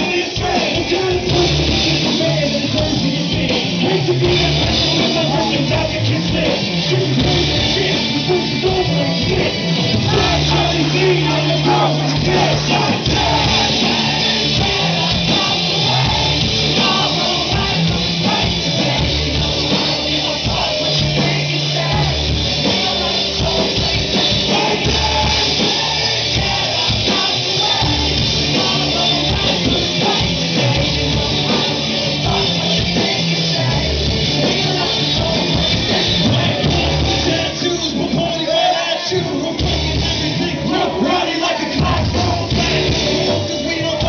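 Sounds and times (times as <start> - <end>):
live rock band playing: 0.0 - 44.0
person singing: 0.0 - 44.0
bass low notes: 0.9 - 37.6.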